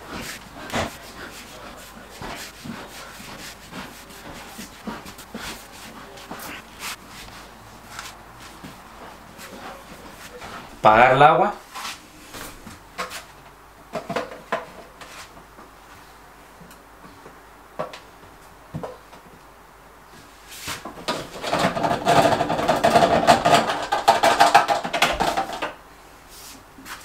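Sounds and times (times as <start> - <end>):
plastic hose rasping: 0.0 - 10.4, 21.1 - 25.6
hoses clicking and knocking: 20.9 - 25.8.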